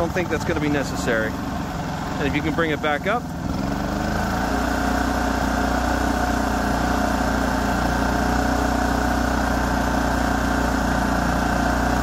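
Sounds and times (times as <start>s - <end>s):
generator engine running: 0.0s - 12.0s.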